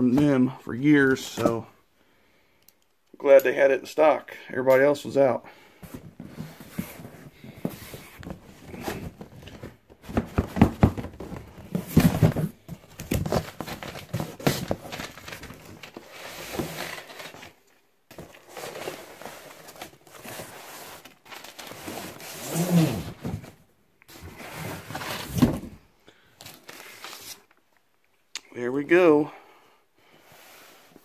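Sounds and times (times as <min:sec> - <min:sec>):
cardboard box scraping and rustling: 0:18.1 - 0:25.8.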